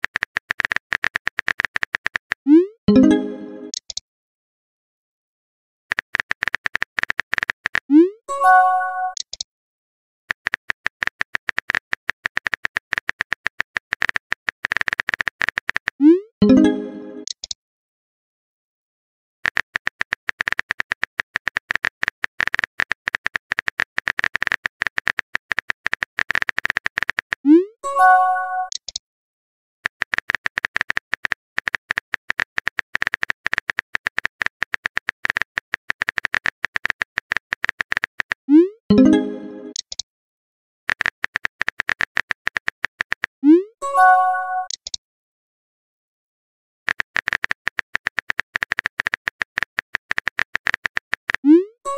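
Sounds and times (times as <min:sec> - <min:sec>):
phone keyboard typing clicks: 0:00.0 - 0:02.4, 0:03.1 - 0:04.0, 0:05.9 - 0:07.9, 0:09.0 - 0:09.4, 0:10.3 - 0:16.0, 0:16.6 - 0:17.6, 0:19.4 - 0:27.4, 0:28.6 - 0:29.0, 0:29.8 - 0:40.0, 0:40.9 - 0:43.3, 0:44.6 - 0:45.0, 0:46.9 - 0:51.5
message sent chime: 0:02.9 - 0:03.8, 0:08.3 - 0:09.2, 0:16.4 - 0:17.3, 0:27.8 - 0:28.7, 0:38.9 - 0:39.8, 0:43.8 - 0:44.7.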